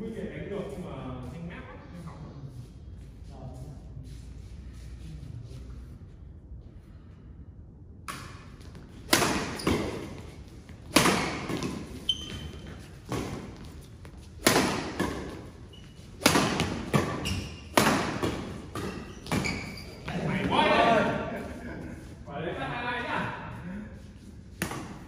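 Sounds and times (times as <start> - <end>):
shoes squeaking on court: 8.6 - 20.6
rackets striking shuttlecock: 10.8 - 12.0, 14.4 - 15.4, 16.2 - 19.5.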